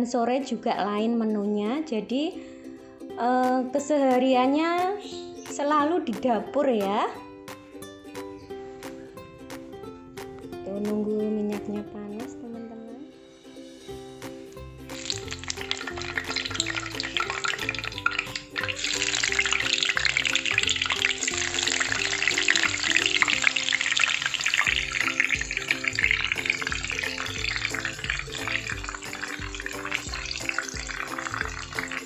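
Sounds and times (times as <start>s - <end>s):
background music with bass: 2.5s - 32.0s
fish sizzling in hot oil: 14.9s - 32.0s.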